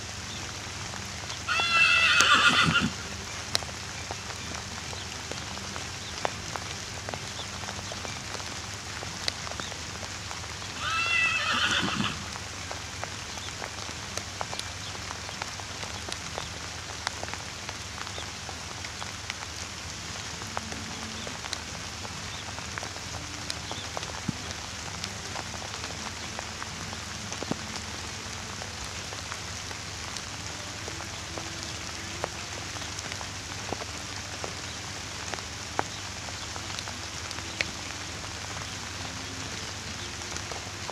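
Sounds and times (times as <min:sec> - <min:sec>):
steady hiss: 0:00.0 - 0:40.9
horse whinnying: 0:01.5 - 0:03.0, 0:10.8 - 0:12.2.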